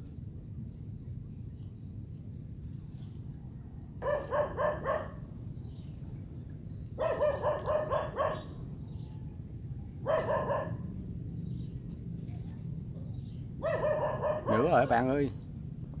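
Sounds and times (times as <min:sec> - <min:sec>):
dog barking: 0:04.0 - 0:05.2, 0:07.0 - 0:08.6, 0:10.0 - 0:10.9, 0:13.6 - 0:14.9.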